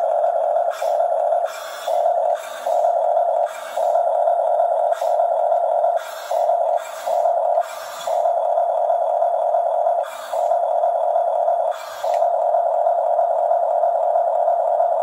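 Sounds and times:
toy electric motor whirring: 0.0s - 14.9s.

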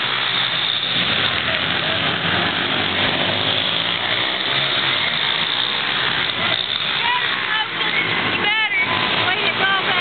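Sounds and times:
pit bike engines racing: 0.0s - 10.0s.

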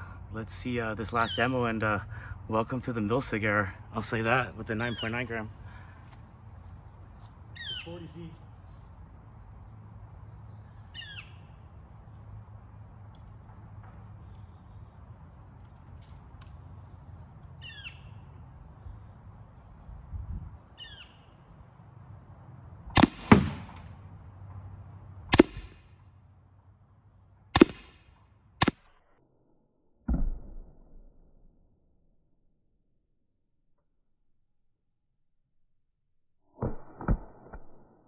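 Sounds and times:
bird chirping: 1.1s - 1.8s, 4.5s - 9.0s, 10.2s - 11.8s, 13.8s - 15.2s, 16.4s - 21.6s
paintball marker shots: 23.0s - 24.1s, 25.3s - 26.0s, 27.6s - 29.0s, 36.6s - 38.0s.

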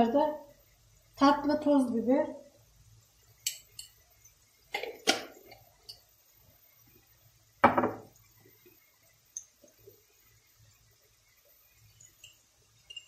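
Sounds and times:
ringing knock on counter: 7.6s - 8.0s.

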